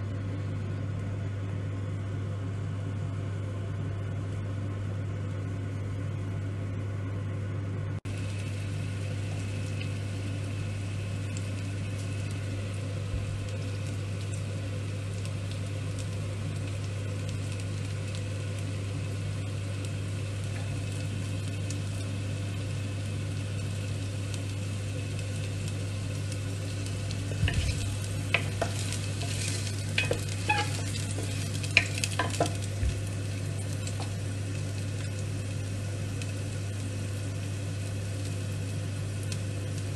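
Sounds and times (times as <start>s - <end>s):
low hum: 0.0s - 38.2s
garlic sizzling in oil: 8.1s - 39.9s.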